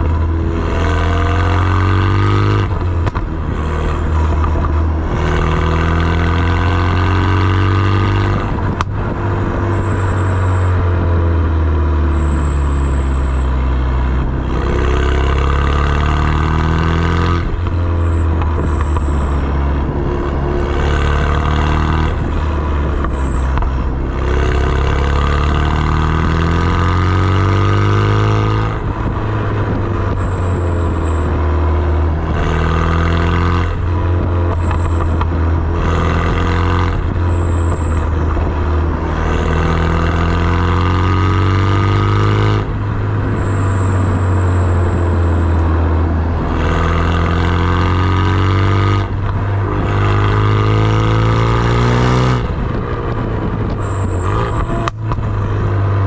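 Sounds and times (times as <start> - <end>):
car engine accelerating: 0.0 - 56.0
high-pitched turbo whistles: 9.7 - 10.8, 12.1 - 13.5, 18.0 - 19.5, 23.1 - 23.6, 30.1 - 31.4, 34.6 - 35.2, 37.2 - 38.1, 43.2 - 45.7, 53.7 - 55.0.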